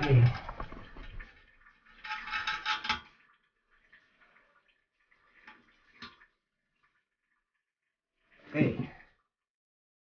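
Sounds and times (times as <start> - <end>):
scraping and clinking in toilet tank: 0.0 - 6.9.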